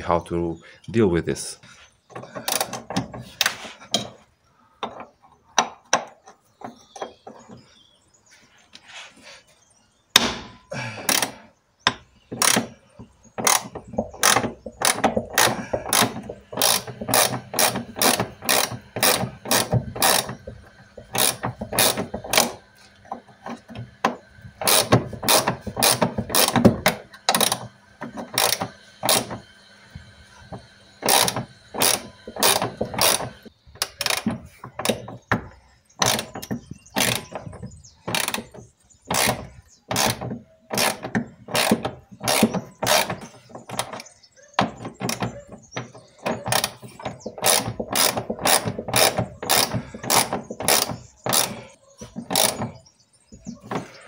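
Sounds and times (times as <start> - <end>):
ratchet wrench clicking: 13.4 - 20.4, 21.1 - 22.6, 24.6 - 26.6, 28.4 - 29.3, 31.0 - 34.3, 37.0 - 37.3, 40.8 - 43.1, 47.4 - 51.5, 52.3 - 52.6.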